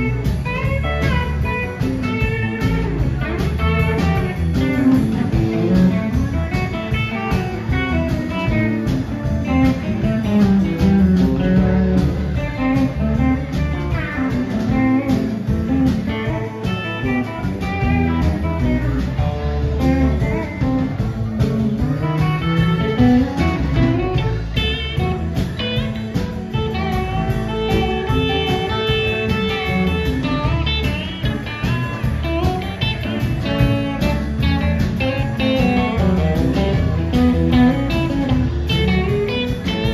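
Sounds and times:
bass guitar: 0.0 - 39.9
drum kit: 0.0 - 39.9
electric guitars: 0.0 - 39.9
pedal steel guitar: 0.0 - 39.9.

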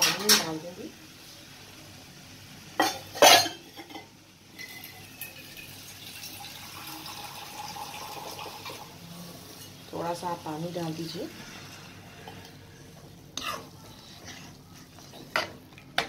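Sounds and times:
water hissing in hot pan: 4.6 - 12.3.

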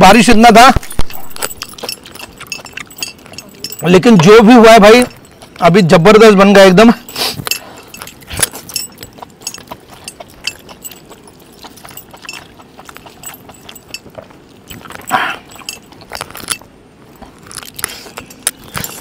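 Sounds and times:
metal bracelets jingling: 0.1 - 16.7, 17.8 - 19.0
hands tearing meat: 17.3 - 18.9.

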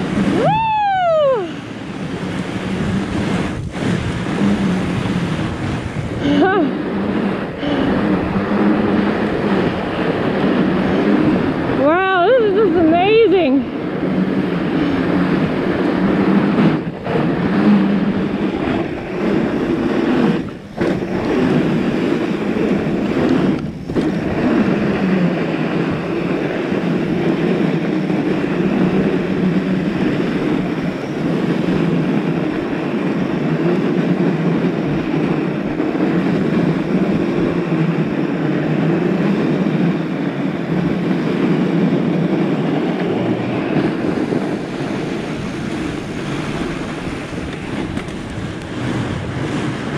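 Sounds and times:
bike tires rolling over snow: 0.0 - 49.9
wind on microphone: 0.0 - 49.9.

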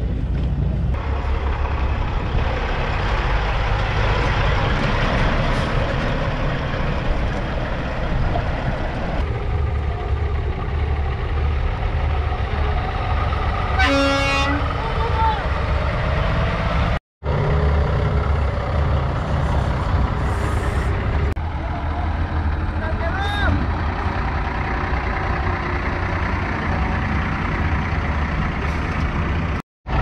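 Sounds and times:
truck engines rumbling: 0.0 - 30.0.

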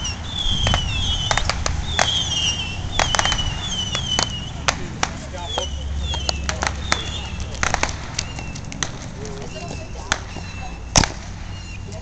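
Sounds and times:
high falling whistles: 0.0 - 4.7, 5.3 - 7.5, 9.4 - 11.9
firecrackers popping: 0.0 - 12.0.

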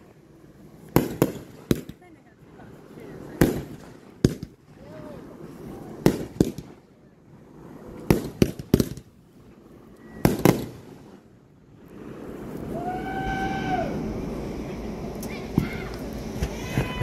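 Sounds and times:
fireworks bangs: 0.8 - 2.2, 3.2 - 6.8, 7.9 - 9.1, 10.1 - 11.2.

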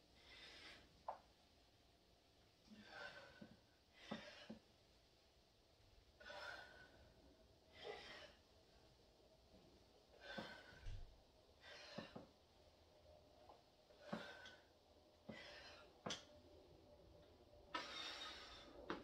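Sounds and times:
person breathing hard: 6.2 - 8.5, 10.1 - 11.0, 13.9 - 16.1.

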